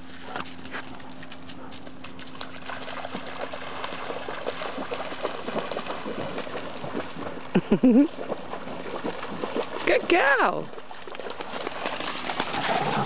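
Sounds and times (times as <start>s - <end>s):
dog splashing through water: 0.1s - 13.0s.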